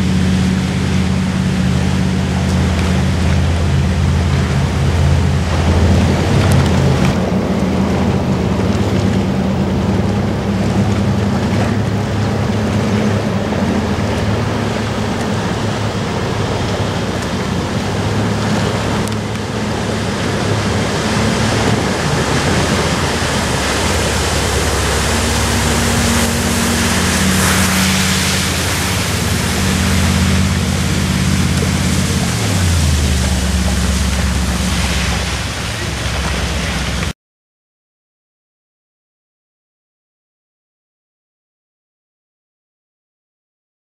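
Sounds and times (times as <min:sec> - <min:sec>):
boat engines running: 0:00.0 - 0:37.1
wind noise on microphone: 0:00.0 - 0:37.1
rushing water: 0:00.0 - 0:37.2
water cannon spraying: 0:11.3 - 0:37.1.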